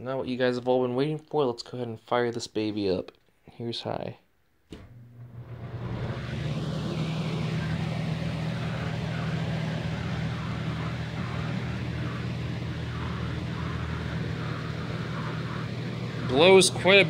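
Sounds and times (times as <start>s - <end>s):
box fan running: 4.7s - 17.0s.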